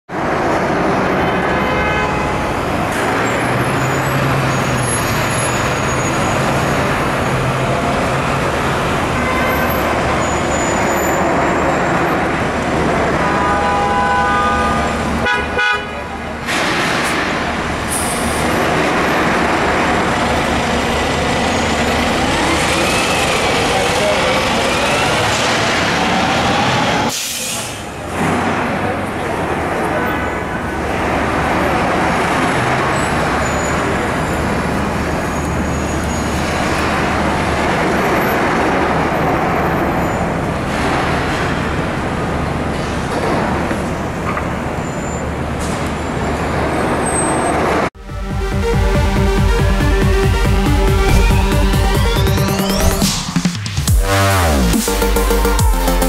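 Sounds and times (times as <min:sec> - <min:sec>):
heavy engine and street noise: 0:00.1 - 0:56.0
fire engine horn blasts: 0:01.3 - 0:06.6, 0:09.0 - 0:16.4
siren wailing: 0:48.0 - 0:56.0.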